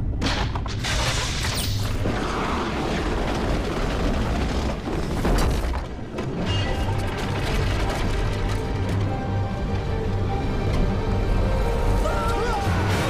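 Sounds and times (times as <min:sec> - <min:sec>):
deep rumble with crashing: 0:00.8 - 0:10.1.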